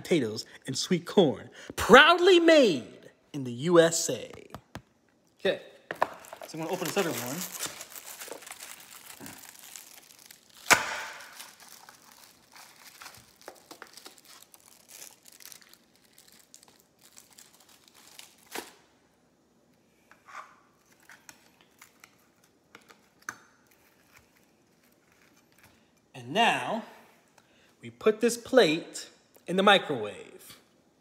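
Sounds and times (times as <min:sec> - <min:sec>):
sharp plastic crack: 0:05.9 - 0:12.1
plastic film crinkling and tearing: 0:05.9 - 0:18.8, 0:20.8 - 0:25.7.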